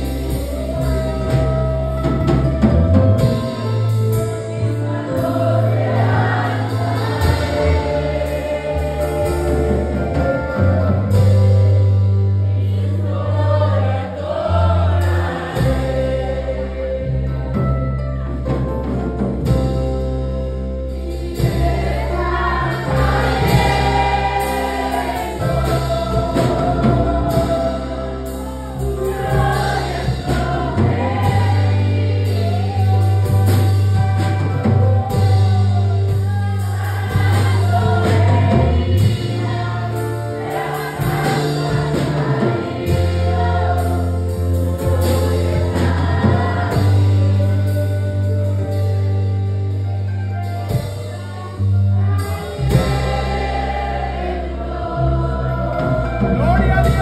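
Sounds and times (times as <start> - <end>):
music with held bass notes: 0.0 - 57.0
girls singing into microphones: 21.3 - 47.6.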